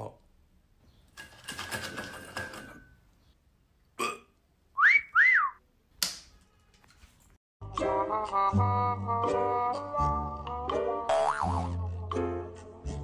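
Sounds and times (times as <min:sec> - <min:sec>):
short burp-like sound: 0:04.0 - 0:04.4
slide whistle glides: 0:04.8 - 0:05.6.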